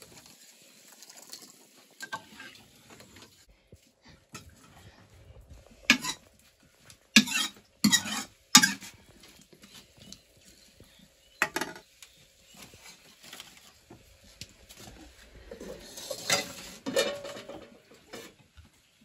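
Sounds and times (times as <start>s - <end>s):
metal ladle scraping a wok: 5.8s - 6.3s, 7.2s - 9.0s, 15.6s - 17.6s.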